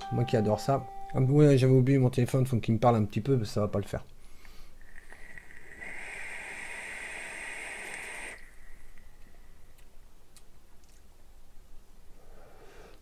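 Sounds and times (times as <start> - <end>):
e-cigarette draw hissing: 4.4 - 9.2.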